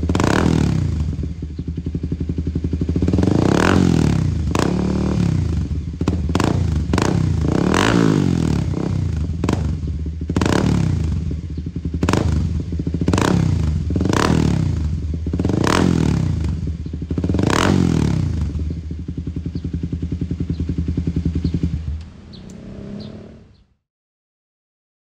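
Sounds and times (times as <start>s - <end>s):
motorcycle engine revving: 0.0s - 23.8s
single-cylinder engine idling: 18.5s - 22.4s.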